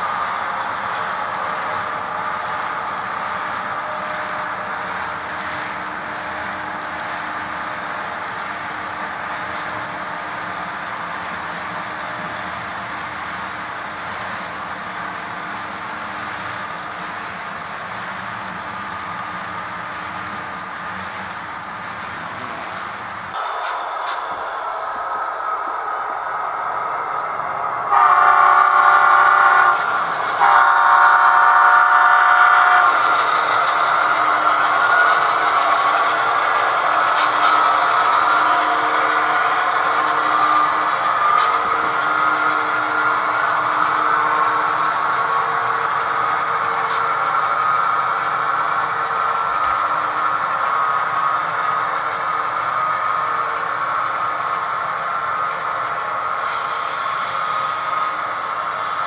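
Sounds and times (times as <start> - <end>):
metal wheels rolling on rail: 0.0 - 23.4, 32.8 - 59.0
model locomotive running: 0.0 - 59.0
model locomotive horn: 22.0 - 23.2, 27.9 - 29.8, 30.4 - 32.9.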